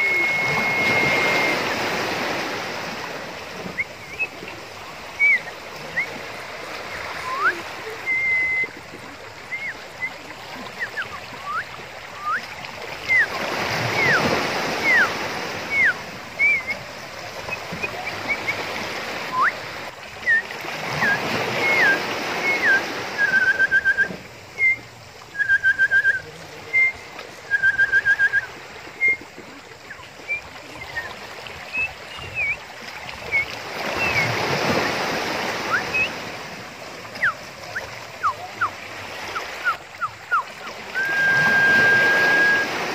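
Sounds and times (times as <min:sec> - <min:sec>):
high whistled bird chirps: 0:00.0 - 0:01.8, 0:13.0 - 0:16.8, 0:31.7 - 0:32.6, 0:33.3 - 0:35.0, 0:35.6 - 0:36.2, 0:37.1 - 0:42.8
waves washing over rocks: 0:00.0 - 0:42.9.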